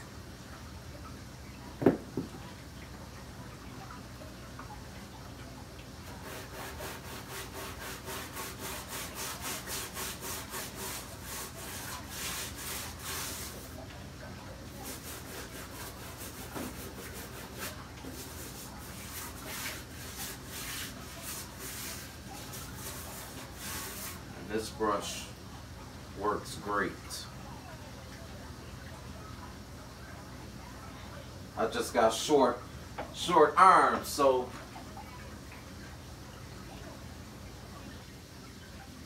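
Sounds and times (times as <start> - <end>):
brush scrubbing rock: 6.0 - 13.8, 14.8 - 25.1.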